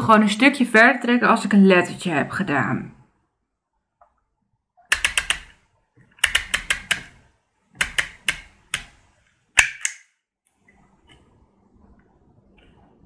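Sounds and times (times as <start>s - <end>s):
label maker clicking and ratcheting: 4.9s - 5.6s, 6.2s - 7.1s.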